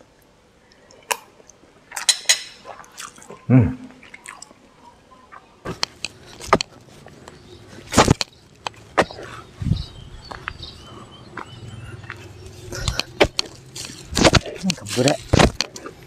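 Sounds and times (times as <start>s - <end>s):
chewing: 0.7s - 9.5s, 11.3s - 16.0s
person humming mm: 3.5s - 4.0s.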